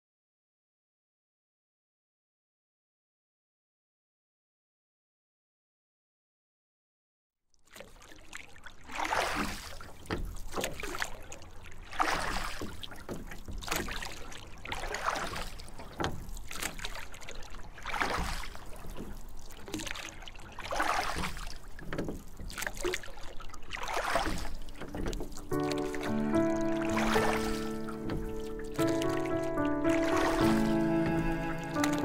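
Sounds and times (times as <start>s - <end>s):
paddle splashing in water: 7.6s - 32.0s.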